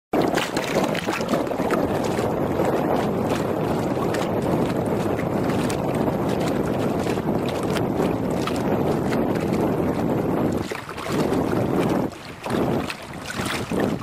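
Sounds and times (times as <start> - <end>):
water slapping against boat hull: 0.1 - 14.0
small splashes: 0.2 - 4.3, 10.6 - 14.0
wind buffeting microphone: 0.2 - 14.0.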